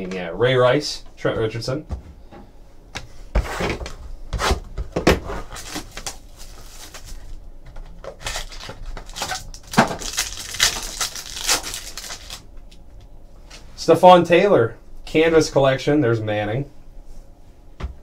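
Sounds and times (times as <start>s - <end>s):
foil card pack crinkling and tearing: 5.4s - 12.5s.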